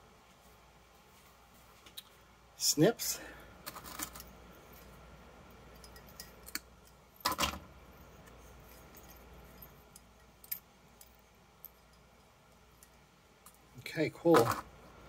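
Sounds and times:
glass and metal clatter: 5.7s - 6.5s.

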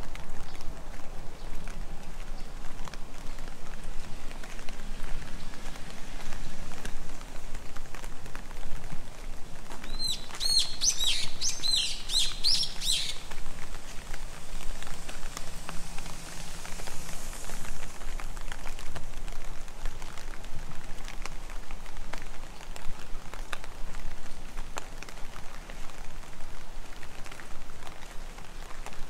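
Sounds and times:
raindrop ticks: 0.0s - 11.6s, 13.2s - 29.0s
steady rain falling: 0.0s - 29.0s
bird chirping: 9.8s - 13.4s.

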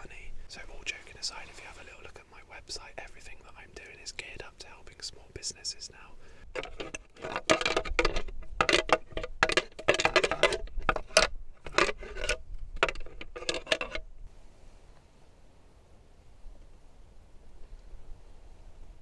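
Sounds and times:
antlers rattling and scraping: 6.2s - 14.1s.

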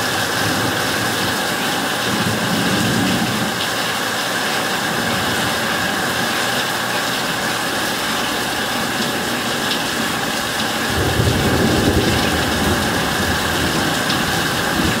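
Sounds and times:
heavy rain hissing: 0.0s - 15.0s
thunder rumble: 10.8s - 15.0s.

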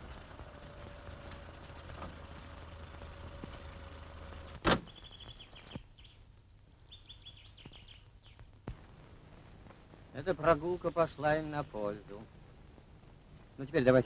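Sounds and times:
birds chirping: 0.0s - 14.0s
low film soundtrack hum: 0.0s - 14.0s
truck door banging shut: 4.6s - 5.0s.

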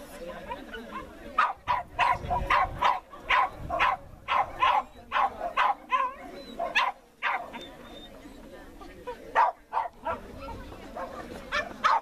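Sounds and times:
dog barking: 1.4s - 7.6s, 9.4s - 10.2s, 11.0s - 12.0s.

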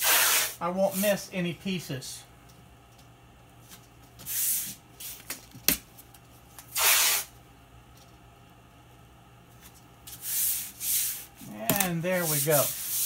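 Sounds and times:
tape ripping off roll: 6.7s - 7.3s.

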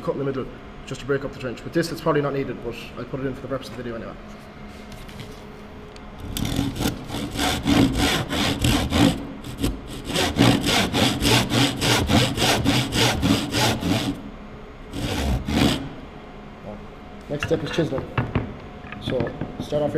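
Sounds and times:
hand saw rasping through wood: 6.2s - 14.2s, 14.9s - 16.0s.

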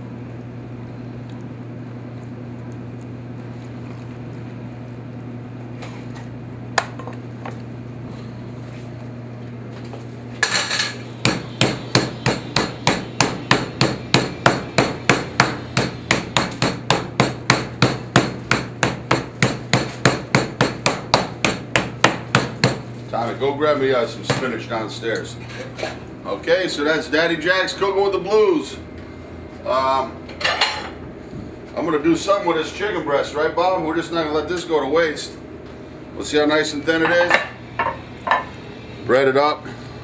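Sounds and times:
steady low hum: 0.0s - 40.0s
meat mallet pounding meat: 11.2s - 22.9s.

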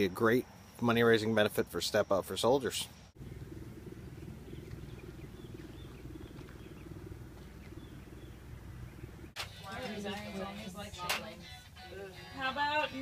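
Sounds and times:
low outdoor rumble: 3.0s - 11.0s.

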